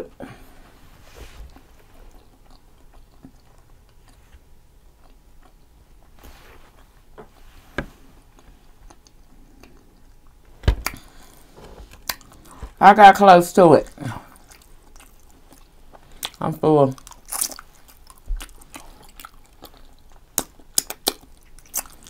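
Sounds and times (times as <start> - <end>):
person chewing food: 0.0 - 7.4, 8.0 - 12.8, 13.8 - 22.0
wet mouth clicks: 17.1 - 22.0.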